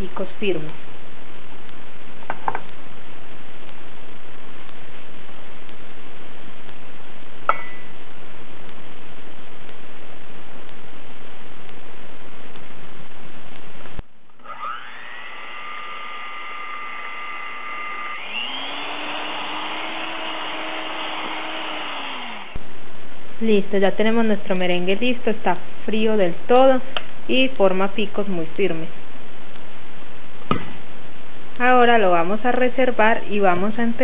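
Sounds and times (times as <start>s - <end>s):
electric hand mixer whine: 14.4s - 22.6s.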